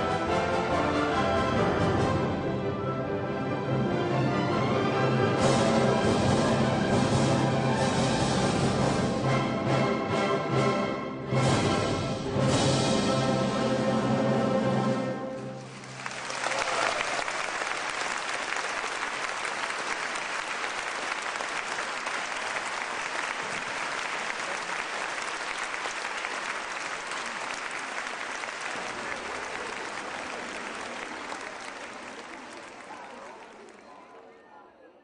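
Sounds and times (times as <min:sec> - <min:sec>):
audience applause: 0:15.4 - 0:34.3.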